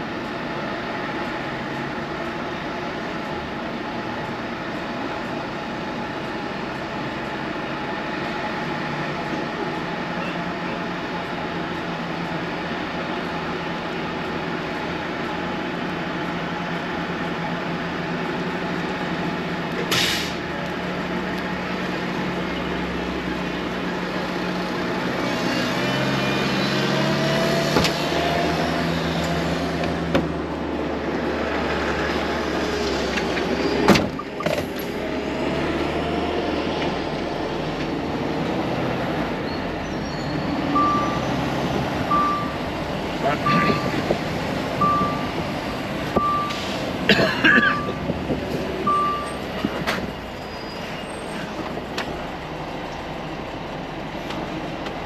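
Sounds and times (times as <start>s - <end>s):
truck diesel engine running: 0.0s - 55.0s
air brake hiss: 19.9s - 20.4s, 46.4s - 46.9s.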